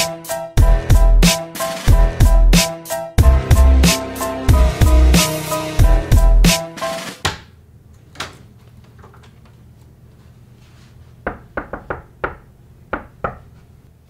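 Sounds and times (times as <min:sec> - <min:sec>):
music heavy beat: 0:00.0 - 0:07.2.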